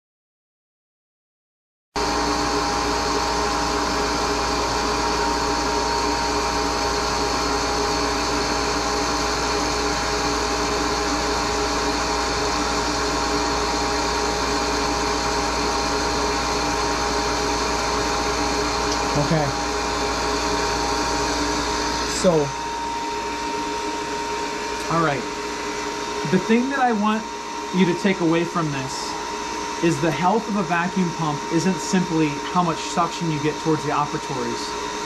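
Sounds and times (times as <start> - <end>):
vacuum pump humming: 2.0 - 35.0.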